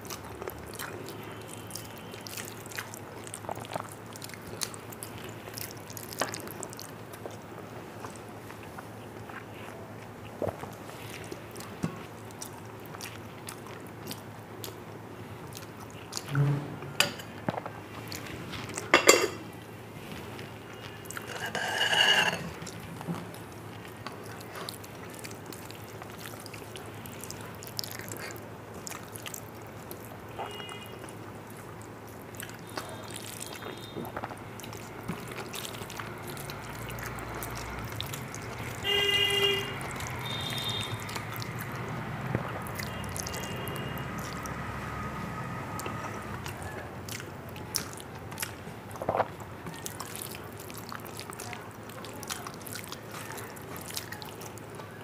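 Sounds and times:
chewing and lip-smacking: 0.0 - 16.3, 22.6 - 55.0
horn-like toot: 38.8 - 41.0.

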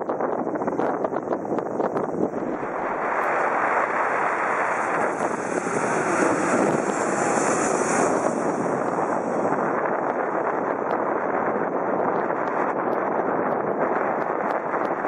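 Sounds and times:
jet plane passing low overhead: 2.2 - 10.9.

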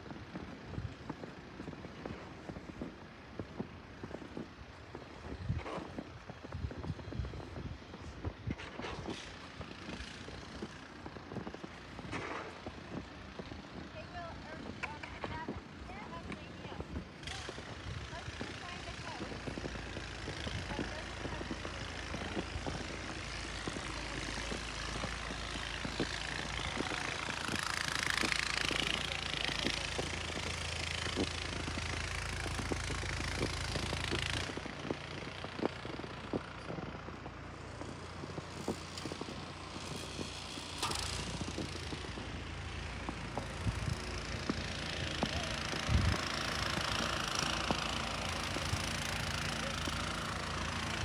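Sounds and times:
footsteps crunching on snow: 0.0 - 51.0
gusting wind on microphone: 45.5 - 47.0.

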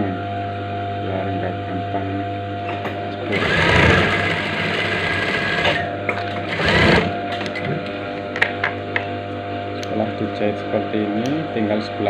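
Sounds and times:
sewing machine stitching: 3.3 - 5.8, 6.5 - 7.1.

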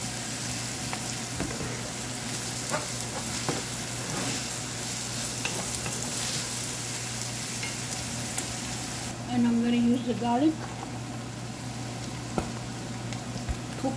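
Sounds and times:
onions sizzling in oil: 0.0 - 13.9
spatula scraping a pan: 2.7 - 4.6.

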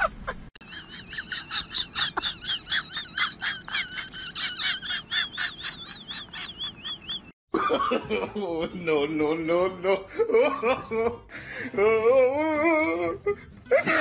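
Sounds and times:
high repeated chirping calls: 4.9 - 7.3.

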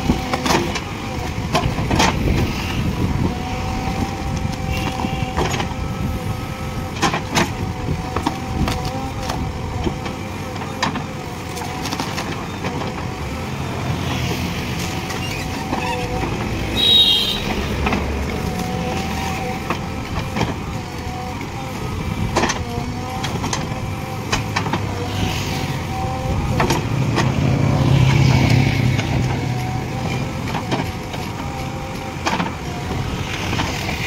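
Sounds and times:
diesel engine whining under load: 0.0 - 34.0
loud high squeal: 15.2 - 17.8.

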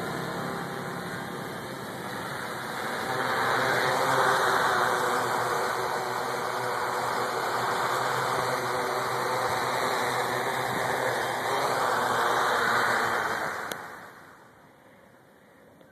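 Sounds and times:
quadcopter propellers buzzing: 0.0 - 14.6.

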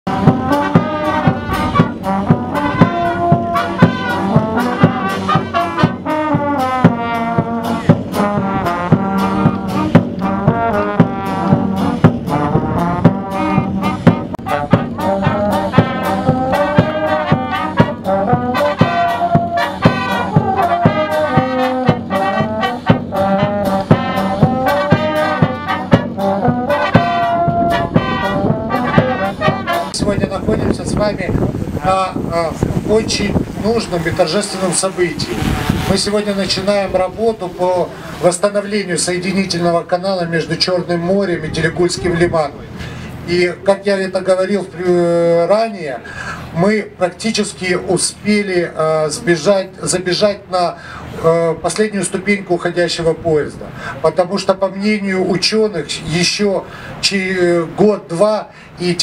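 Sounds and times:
bass drum beat: 0.1 - 34.3
brass band playing: 0.1 - 45.5.

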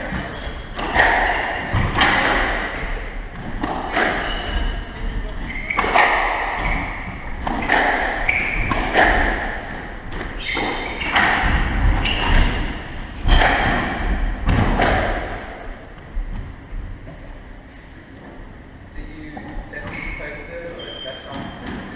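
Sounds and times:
squash ball hits: 0.1 - 15.6.

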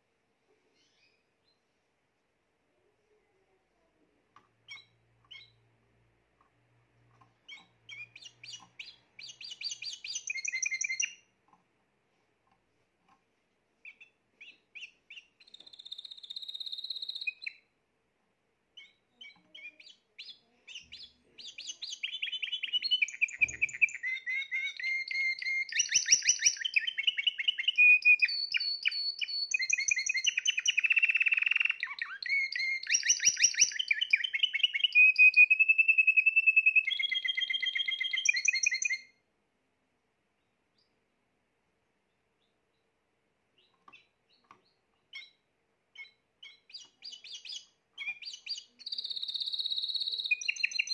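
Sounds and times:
canary singing: 0.7 - 1.7, 4.4 - 11.6, 13.8 - 17.8, 18.7 - 39.2, 43.5 - 50.9.

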